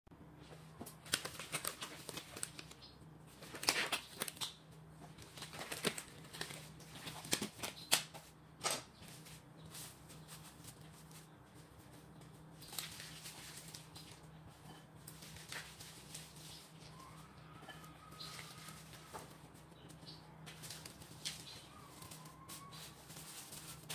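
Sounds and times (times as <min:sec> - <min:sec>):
plastic rustling and crinkling: 0:00.5 - 0:23.9.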